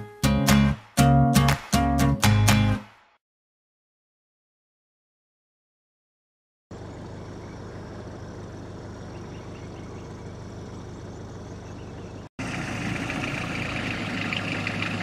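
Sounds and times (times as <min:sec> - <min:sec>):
van engine idling: 0:06.7 - 0:15.0.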